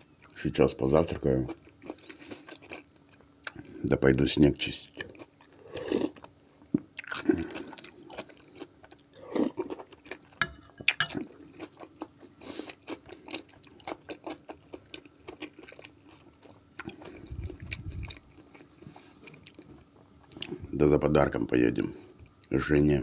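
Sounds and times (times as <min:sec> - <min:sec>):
wet crunchy chewing: 0:07.0 - 0:20.6.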